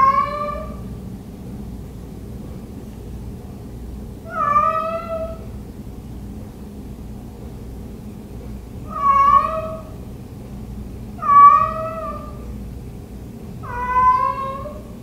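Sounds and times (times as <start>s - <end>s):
cat meowing: 0.0s - 0.8s, 4.3s - 5.5s, 8.9s - 10.0s, 11.2s - 12.4s, 13.6s - 15.0s.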